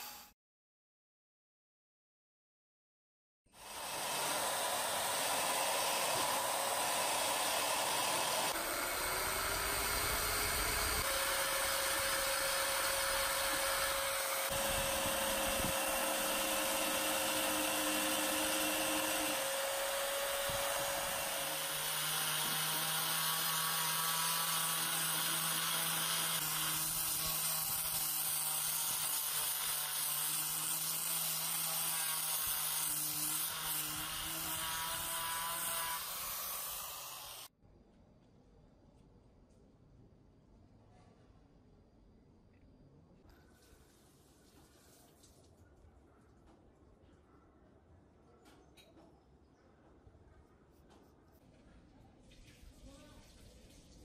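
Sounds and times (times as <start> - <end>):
angle grinder sanding steel: 0.0 - 0.3, 3.6 - 37.5
rotary tool grinding steel: 0.0 - 0.4, 3.6 - 37.5.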